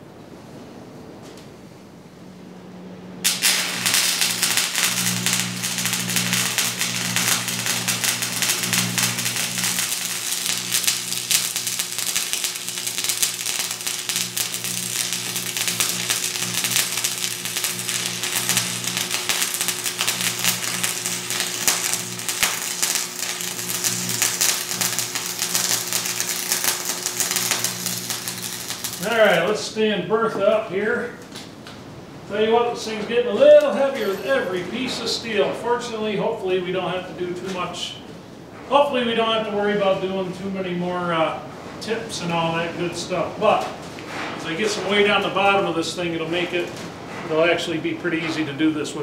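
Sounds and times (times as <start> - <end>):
low steady hum: 0.0 - 49.0
welding arc crackling: 3.2 - 29.8.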